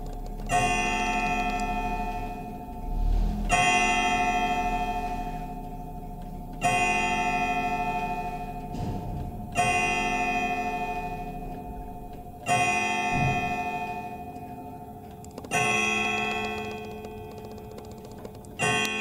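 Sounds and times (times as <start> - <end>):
faint clock ticking: 0.0 - 2.9, 14.4 - 19.0
clock gong strikes: 0.6 - 15.0.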